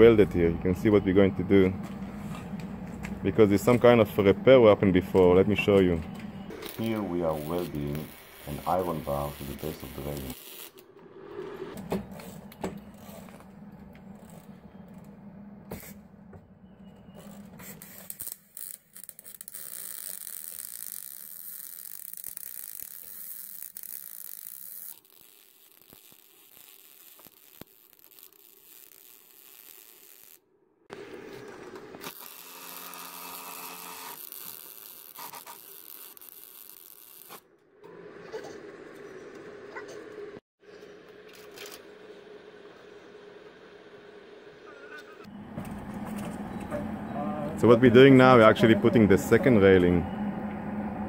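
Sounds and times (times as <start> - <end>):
welder arc crackling and hissing: 0.0 - 11.8, 17.8 - 30.4, 32.0 - 37.4.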